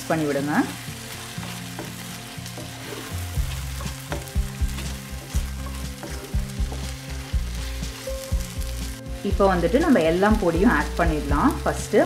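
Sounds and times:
food sizzling in hot oil: 0:00.0 - 0:12.0
wooden spatula scraping pan: 0:00.7 - 0:09.0.

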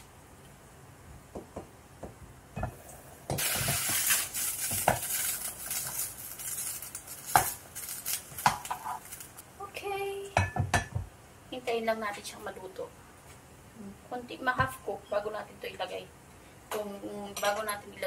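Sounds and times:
food sizzling in a pan: 0:02.6 - 0:09.4.

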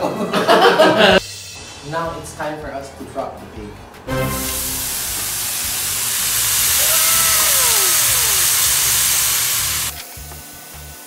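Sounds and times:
bacon sizzling in a wok: 0:04.2 - 0:11.0.

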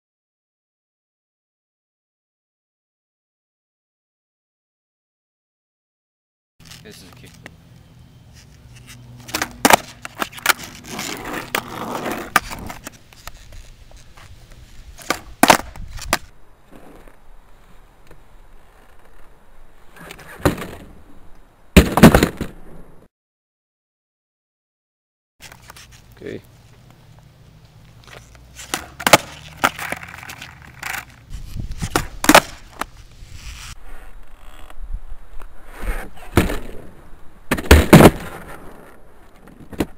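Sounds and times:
skateboard wheels rolling on asphalt: 0:08.3 - 0:23.1, 0:25.4 - 0:39.9
skateboard clacking on asphalt: 0:08.8 - 0:17.2, 0:28.1 - 0:33.0.

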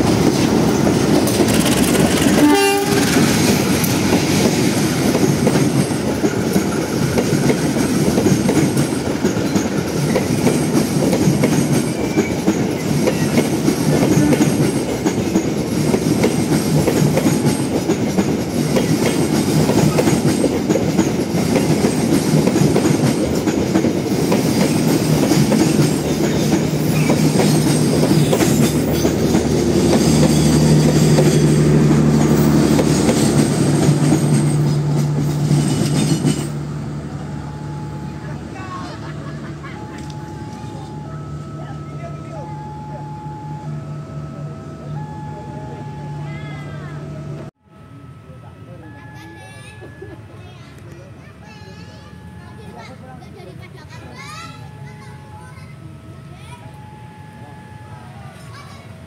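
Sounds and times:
train wheels clattering: 0:00.0 - 0:36.6.

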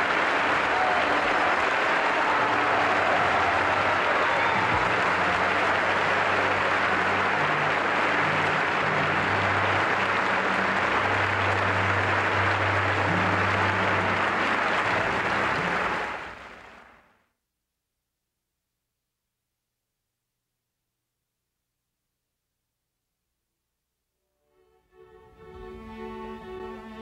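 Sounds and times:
large audience applauding: 0:00.0 - 0:17.0.

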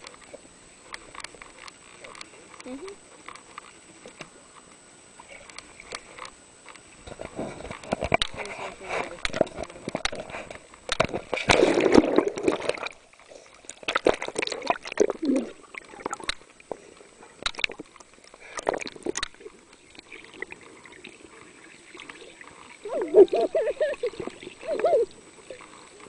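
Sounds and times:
water sloshing and splashing: 0:06.9 - 0:26.0
knocks and gurgles: 0:07.0 - 0:20.6.

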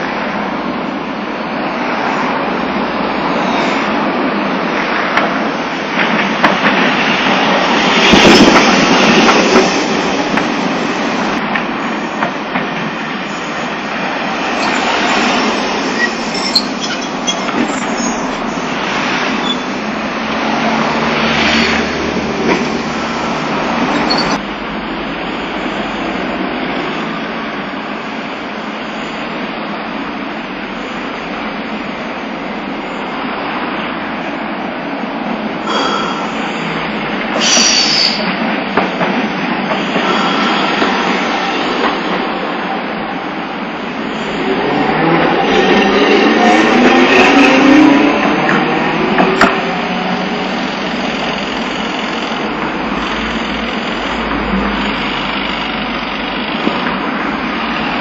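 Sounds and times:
streetcar rumbling past: 0:00.0 - 0:58.0
tram wheels rolling on rails: 0:00.0 - 0:58.0
high wheel squeal: 0:07.4 - 0:12.2, 0:13.0 - 0:20.5, 0:22.6 - 0:24.5, 0:35.6 - 0:38.5, 0:39.7 - 0:49.0.

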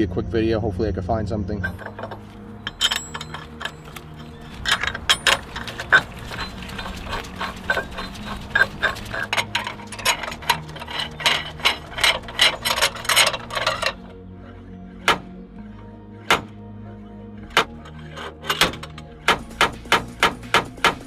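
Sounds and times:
metal tools clinking: 0:01.6 - 0:14.2, 0:17.7 - 0:19.2.

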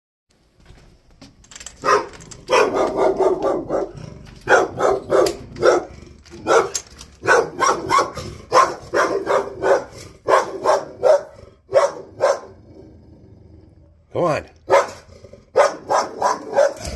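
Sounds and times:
dog barking: 0:01.8 - 0:12.6, 0:14.7 - 0:16.9.

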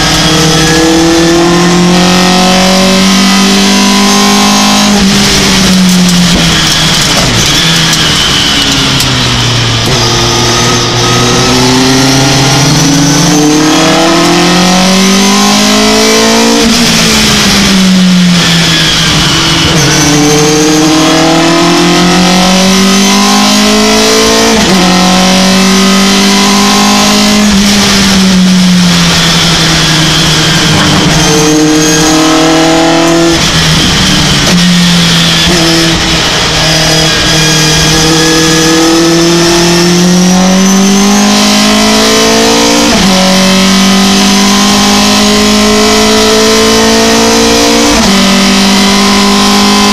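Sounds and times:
truck engine revving through gears: 0:00.0 - 0:49.9.

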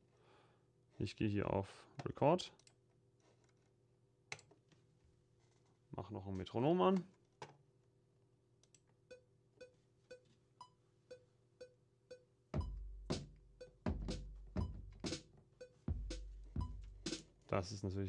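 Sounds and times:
booming kick drums: 0:12.6 - 0:13.2, 0:13.9 - 0:14.9, 0:15.9 - 0:17.1.

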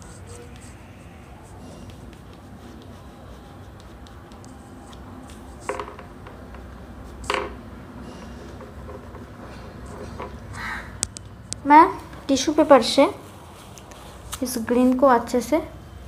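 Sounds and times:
oil pastel scratching on paper: 0:00.0 - 0:05.8
low steady hum: 0:00.0 - 0:16.0.

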